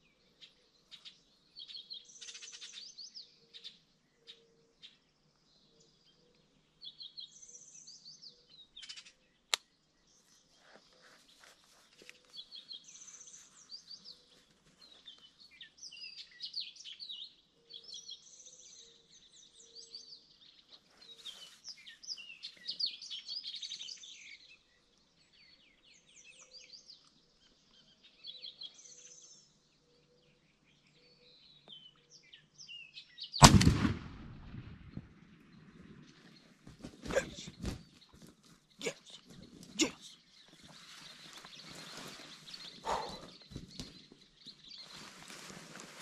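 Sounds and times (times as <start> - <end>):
songbirds chirping and singing: 0.0 - 33.5, 34.9 - 46.0
shotgun shot: 33.4 - 35.2.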